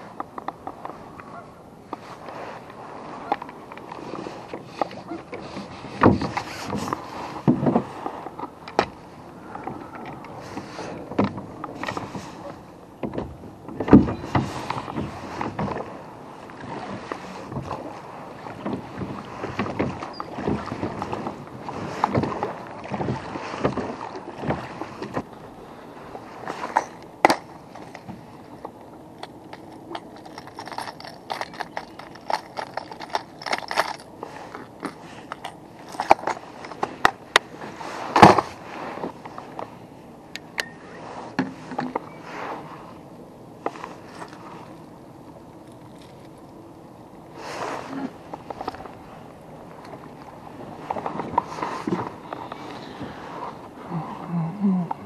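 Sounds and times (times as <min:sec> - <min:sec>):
fishing tackle clicking and knocking: 0:29.2 - 0:37.2
rustling: 0:29.5 - 0:37.1.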